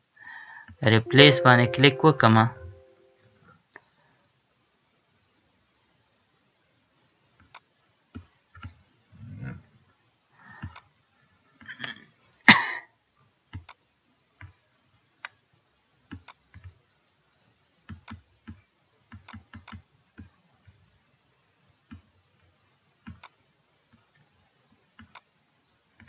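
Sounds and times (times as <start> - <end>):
computer mouse clicks: 7.4 - 8.8, 10.5 - 10.9, 13.5 - 13.8, 16.1 - 16.8, 17.9 - 20.8, 21.9 - 23.4, 25.0 - 25.3.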